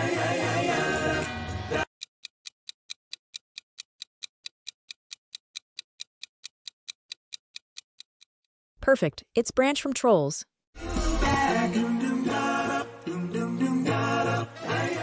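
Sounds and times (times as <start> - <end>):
quick timer ticks: 2.0 - 8.4.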